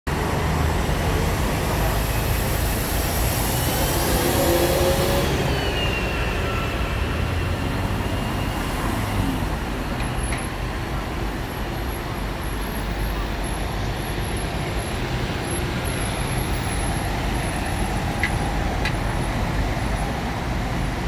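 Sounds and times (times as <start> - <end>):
traffic engine rumble: 0.1 - 21.0
faint drawn-out squeals: 3.6 - 10.4.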